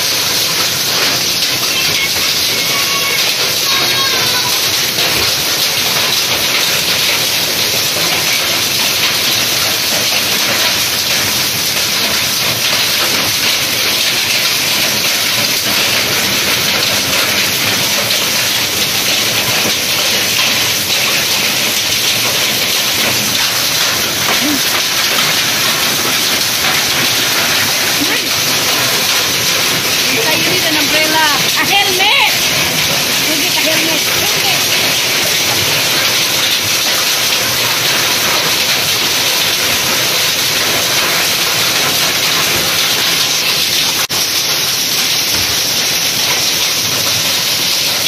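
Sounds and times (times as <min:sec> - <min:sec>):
heavy rain and hail on concrete: 0:00.0 - 0:48.0.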